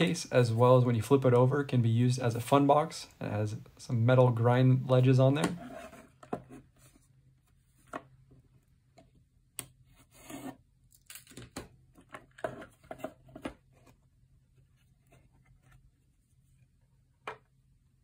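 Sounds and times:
wooden scrape: 5.4 - 7.1.

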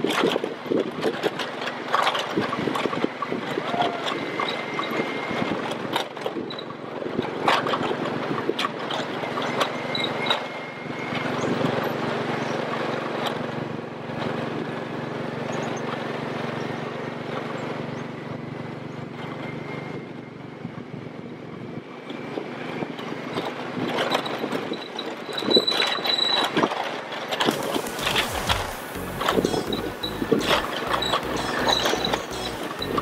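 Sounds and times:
knocks and rattles from bumpy ride: 0.0 - 19.6, 21.7 - 33.0
quad bike engine running: 27.5 - 33.0.

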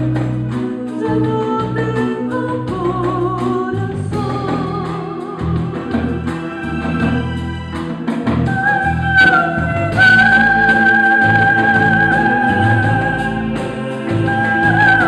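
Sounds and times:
live band playing: 0.0 - 15.0.

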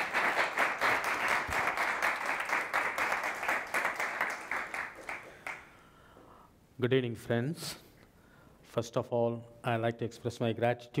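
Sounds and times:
audience applauding: 0.0 - 5.7.

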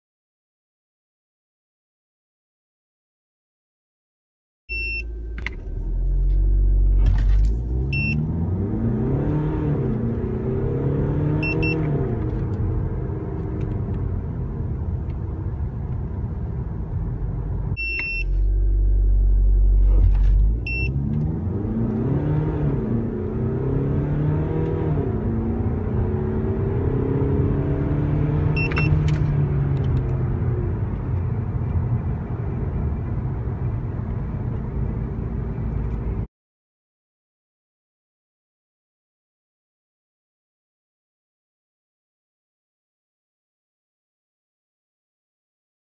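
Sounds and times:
short electronic beeps: 4.7 - 5.1, 7.9 - 8.2, 11.4 - 11.9, 17.8 - 18.4, 20.7 - 21.0, 28.5 - 29.0
low engine rumble: 4.7 - 24.0, 24.7 - 36.3
car engine accelerating: 5.0 - 36.3.

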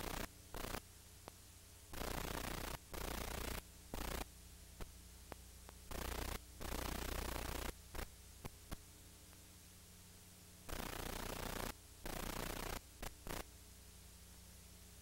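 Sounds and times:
bursts of hissing static: 0.0 - 9.4, 10.4 - 13.6
low electrical hum: 0.0 - 15.0
faint clicks: 2.9 - 6.4.

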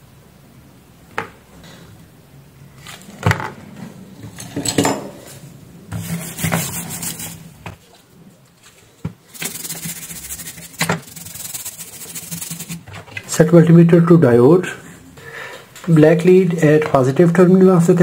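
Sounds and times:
tools knocking and clattering: 4.2 - 5.2
toothbrush scrubbing circuit board: 6.1 - 7.5, 9.3 - 12.9.

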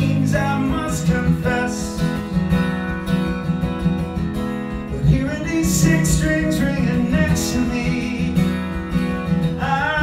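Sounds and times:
man singing into a microphone: 0.0 - 2.2, 5.0 - 8.8, 9.4 - 10.0
acoustic guitar: 0.0 - 10.0.

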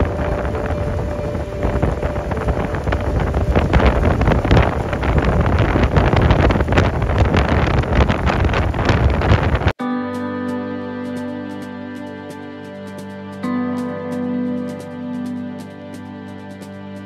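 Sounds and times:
wind buffeting microphone: 0.0 - 9.8.

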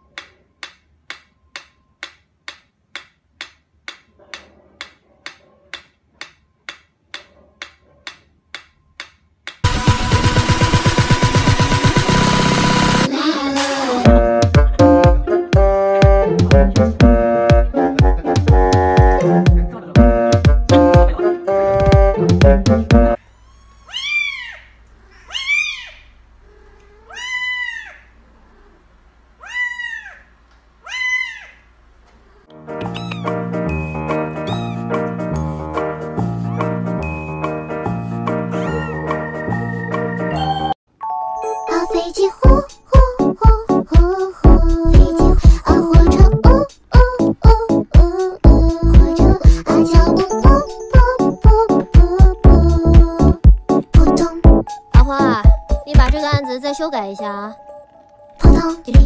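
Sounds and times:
mechanical metronome ticking: 0.1 - 4.0
kitten meowing: 23.4 - 24.6, 25.2 - 26.0, 26.8 - 28.0, 32.8 - 33.4, 34.4 - 34.9, 38.6 - 39.0.

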